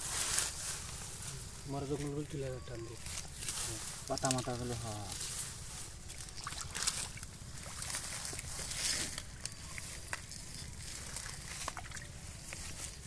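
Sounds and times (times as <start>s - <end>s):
wet leaves crackling: 0.0s - 13.0s
hands splashing in muddy water: 6.1s - 12.6s.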